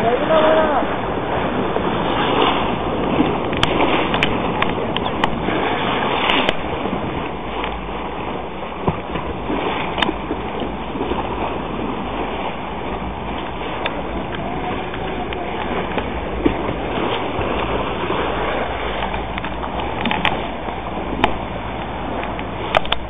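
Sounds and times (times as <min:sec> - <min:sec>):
boat motor running: 0:00.0 - 0:23.0
water against hull: 0:00.0 - 0:23.0
sharp clicks: 0:21.2 - 0:23.0.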